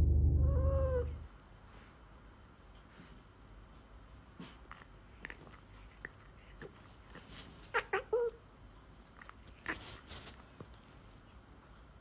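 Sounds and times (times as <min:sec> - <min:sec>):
cat meowing: 0:00.4 - 0:01.2.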